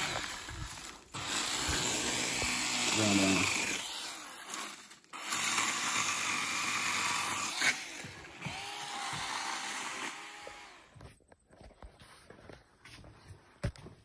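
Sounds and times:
small motor whining: 0.0 - 11.0.

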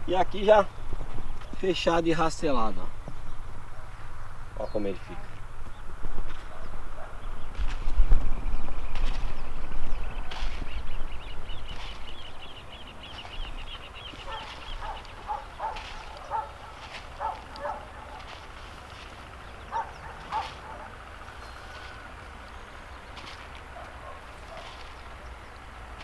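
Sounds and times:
bird chirping: 0.0 - 26.0
light wind rumble: 0.0 - 26.0
distant dog barking: 6.3 - 7.4, 14.0 - 18.6, 19.2 - 22.1, 23.6 - 25.3.

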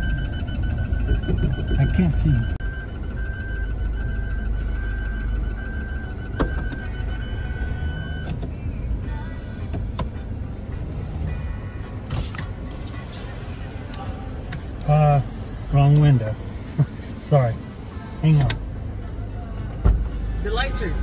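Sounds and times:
reverse warning chime beeping: 0.0 - 8.3
low engine and road rumble: 0.0 - 21.0.

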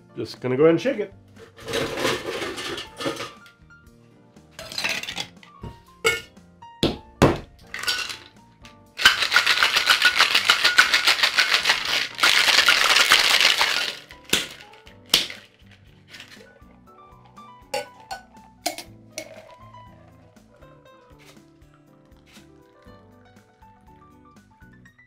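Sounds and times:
ice and metal tins clinking: 1.5 - 3.5, 4.6 - 5.4, 6.0 - 6.3, 7.6 - 8.4, 9.0 - 16.6, 17.8 - 20.4
ice rattling in a shaker: 7.7 - 8.3, 9.0 - 16.5, 19.2 - 20.4.

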